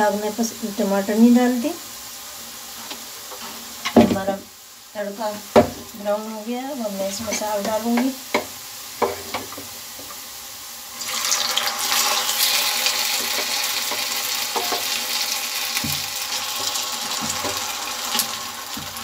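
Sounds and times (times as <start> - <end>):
food sizzling in hot oil: 0.0 - 19.0
ladle knocking on pan: 5.5 - 5.8, 7.6 - 9.7, 13.2 - 15.0, 15.8 - 17.7, 18.7 - 19.0.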